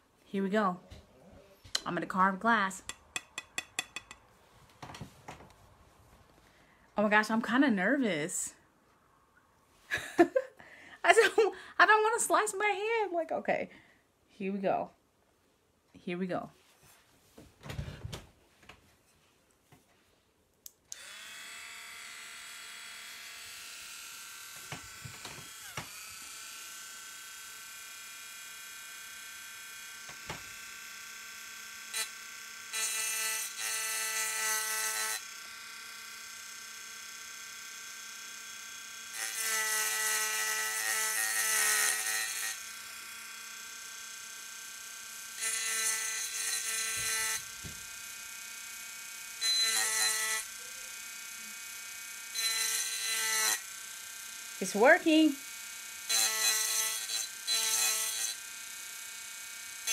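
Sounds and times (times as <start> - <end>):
carving bit grinding glass: 2.8 - 4.2, 31.4 - 59.9
rotary tool motor whine: 21.0 - 59.9.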